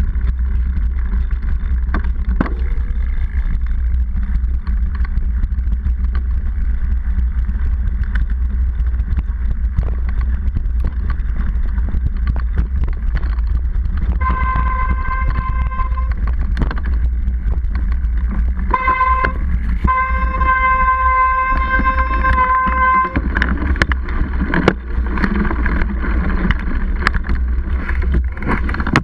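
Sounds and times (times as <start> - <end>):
bike rumble and rattling knocks: 0.0 - 29.0
steady high-pitched tone: 14.2 - 16.2, 18.7 - 23.9.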